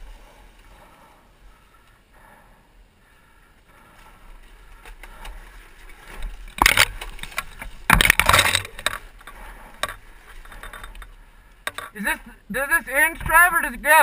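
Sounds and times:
dirt bike crunching over rocks: 0:03.8 - 0:12.0.

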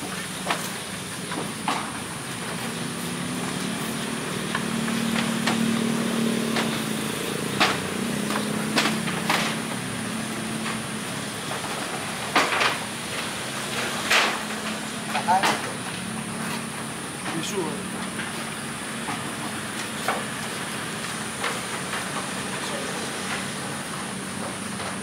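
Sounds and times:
sharp clicks and knocks: 0:03.5 - 0:10.9, 0:11.5 - 0:18.4.

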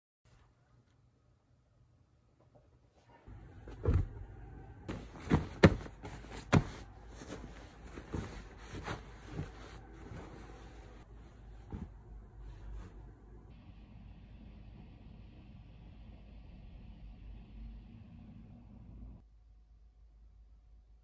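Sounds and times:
bedding rustling: 0:03.0 - 0:13.5.

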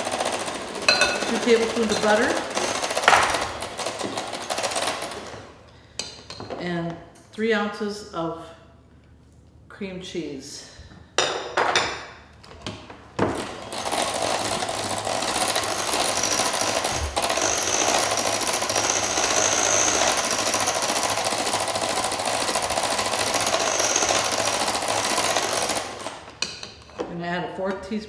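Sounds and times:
electric hand mixer whipping: 0:00.0 - 0:05.4, 0:13.2 - 0:26.4.

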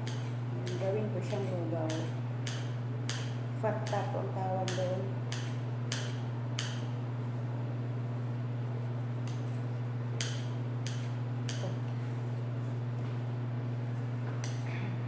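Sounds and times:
scissors snipping bread: 0:00.0 - 0:04.1, 0:10.2 - 0:11.8
low steady hum: 0:00.0 - 0:15.0.

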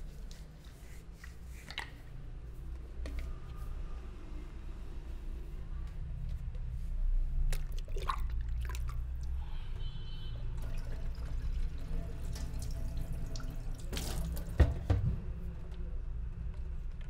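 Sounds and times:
rustling on clip-on microphone: 0:00.0 - 0:07.6.

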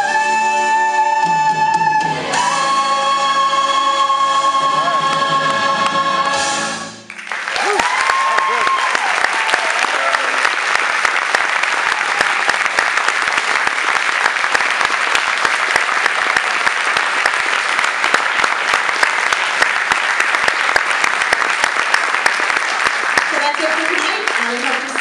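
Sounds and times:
audience applauding: 0:07.0 - 0:25.0.

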